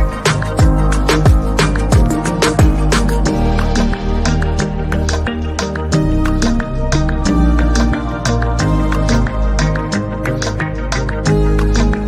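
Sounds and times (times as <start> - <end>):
deep kick drum: 0.0 - 3.5
crisp high percussion: 0.0 - 12.0.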